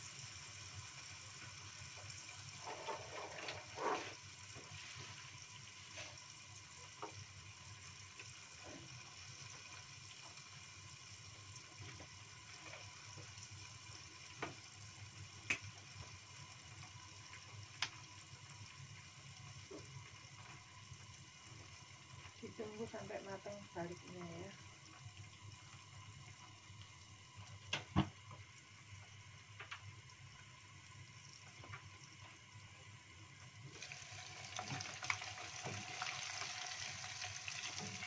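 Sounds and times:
meat frying in oil: 0.0 - 38.0.

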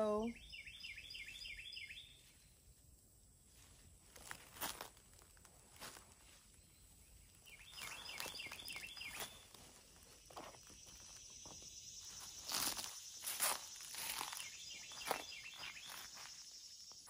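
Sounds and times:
bird chirping: 0.0 - 2.7, 6.2 - 17.0
rustling of plants: 3.4 - 17.0
footsteps: 7.8 - 16.5.

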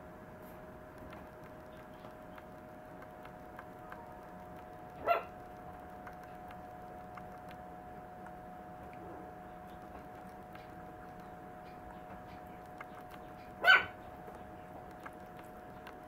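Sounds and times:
faint steady hum: 0.0 - 16.0
puppy barking: 5.0 - 5.4, 13.6 - 14.0.

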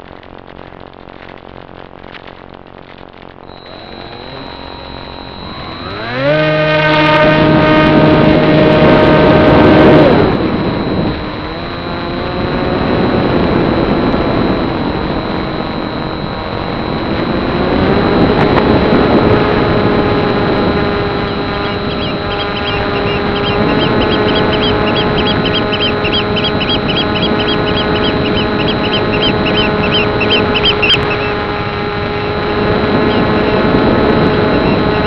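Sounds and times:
electric motor humming: 3.5 - 35.0
rushing wind: 3.5 - 35.0.

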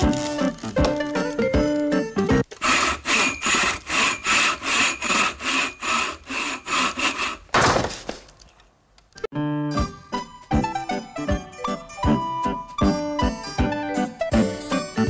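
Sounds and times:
hand saw cutting wood: 2.5 - 7.5.

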